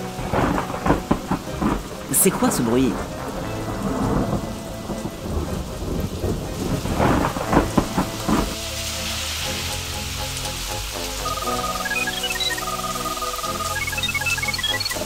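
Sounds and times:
thunder rumbling: 0:00.0 - 0:10.4
music: 0:00.0 - 0:15.0
rain: 0:00.0 - 0:15.0.

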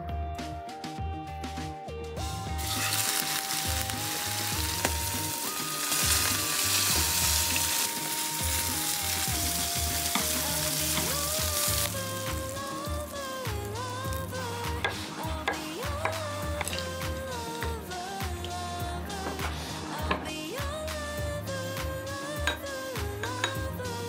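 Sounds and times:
background music with pulsing bass: 0:00.0 - 0:24.0
steak sizzling in pan: 0:02.5 - 0:14.1.

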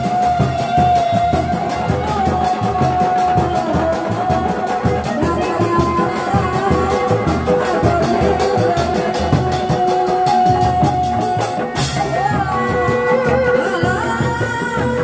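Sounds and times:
drums beaten in uneven rhythm: 0:00.0 - 0:15.0.

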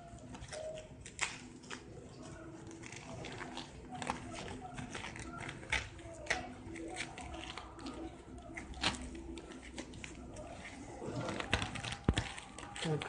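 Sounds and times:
fabric rustling: 0:00.0 - 0:13.0
fabric scraping: 0:06.7 - 0:13.0.

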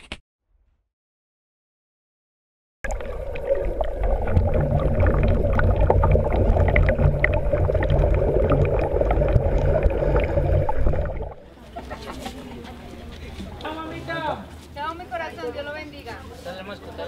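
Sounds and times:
bubbling pops: 0:02.8 - 0:11.4
swimmers churning water underwater: 0:02.8 - 0:11.5.

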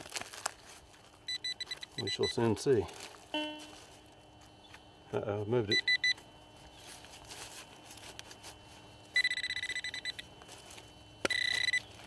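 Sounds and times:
metal detector alert tone: 0:01.3 - 0:02.6, 0:03.3 - 0:03.8, 0:05.7 - 0:06.2, 0:09.2 - 0:10.3, 0:11.2 - 0:11.9.

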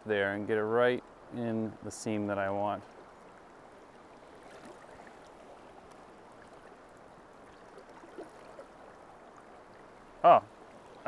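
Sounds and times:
river current rushing: 0:01.0 - 0:11.0
faint small ticks: 0:04.5 - 0:07.0.

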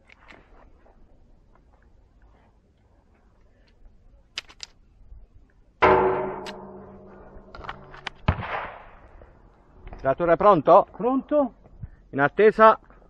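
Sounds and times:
revolver gunshot with ringing tail: 0:05.8 - 0:09.0.

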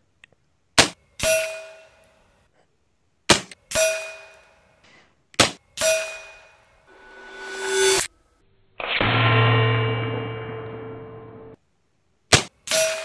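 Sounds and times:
pellet pinging steel target: 0:00.8 - 0:01.9, 0:03.3 - 0:04.5, 0:05.4 - 0:06.6, 0:12.3 - 0:13.0.

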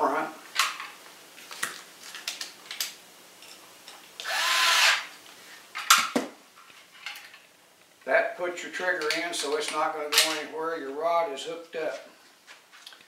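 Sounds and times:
electric screwdriver whining: 0:04.2 - 0:05.1.

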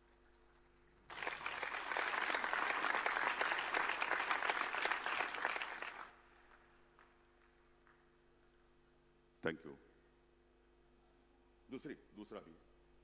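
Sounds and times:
crowd applauding: 0:01.1 - 0:07.1.

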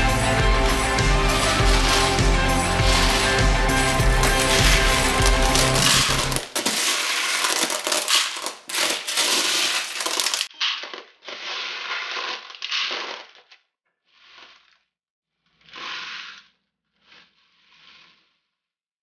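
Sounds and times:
dry pasta and beans rattling: 0:03.8 - 0:10.5.

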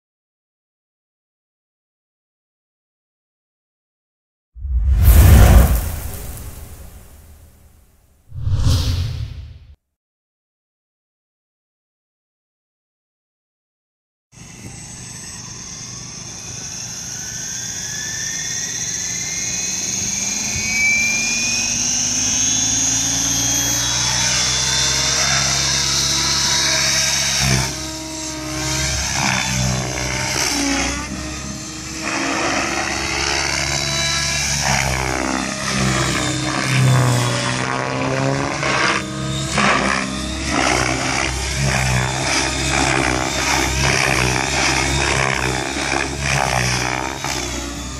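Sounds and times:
electric helicopter motor whine: 0:14.4 - 0:47.9
helicopter rotor noise: 0:14.4 - 0:47.9.

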